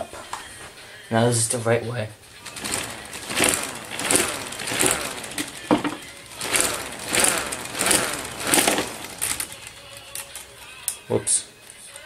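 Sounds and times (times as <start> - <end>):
plastic siren rotor whirring: 2.4 - 9.7.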